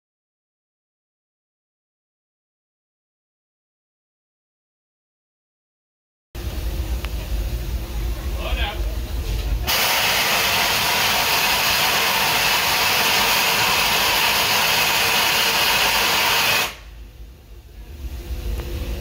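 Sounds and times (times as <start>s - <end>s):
loud steam hiss: 9.6s - 17.0s.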